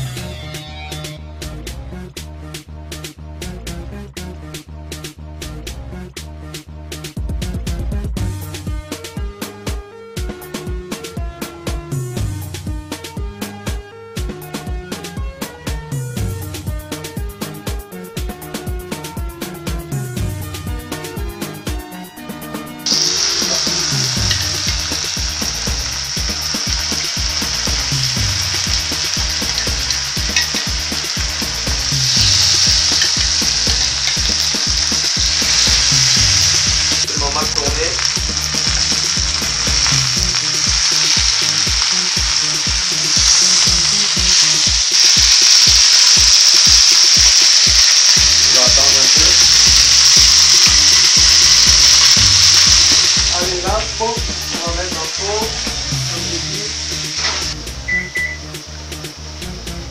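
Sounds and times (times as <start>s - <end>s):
chicken sizzling in a grill pan: 22.8s - 59.6s.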